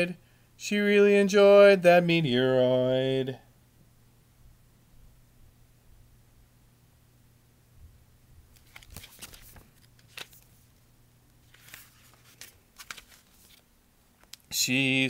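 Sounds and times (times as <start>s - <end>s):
book pages rustling: 8.5s - 14.4s.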